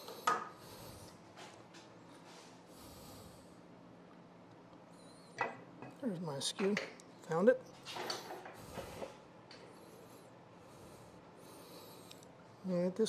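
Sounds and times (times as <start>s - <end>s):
faint breathing: 0.0s - 1.6s, 2.2s - 3.8s, 8.2s - 12.7s.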